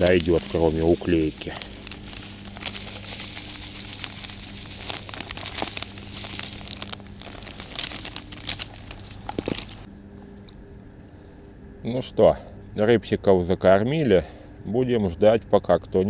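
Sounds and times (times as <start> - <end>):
plastic packet crinkling: 0.0 - 9.9.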